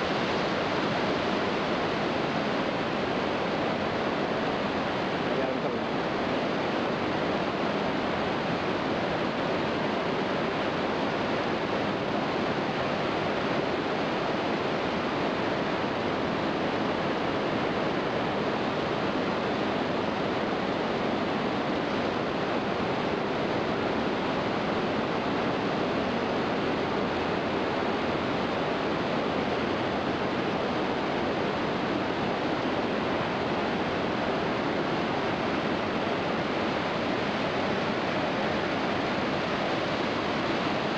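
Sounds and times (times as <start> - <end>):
waterfall rushing: 0.0 - 40.9.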